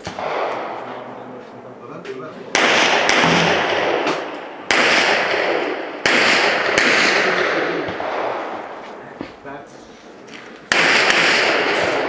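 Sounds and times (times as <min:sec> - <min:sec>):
gunshots: 0:00.0 - 0:01.2, 0:02.5 - 0:08.8, 0:10.3 - 0:12.0.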